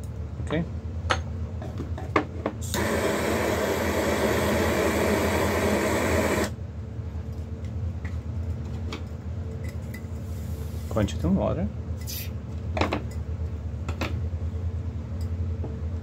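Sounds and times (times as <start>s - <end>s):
torch flame hissing: 2.6s - 6.6s.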